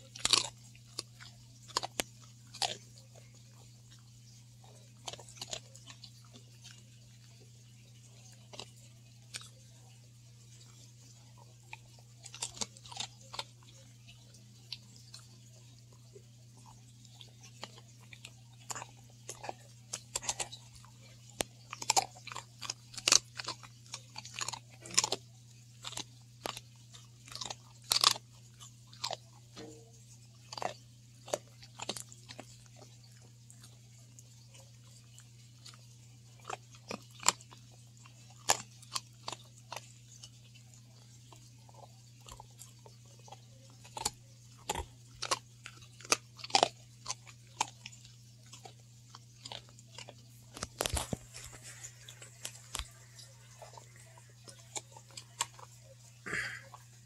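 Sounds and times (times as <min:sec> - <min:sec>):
dog crunching a hard biscuit: 0:00.0 - 0:57.0.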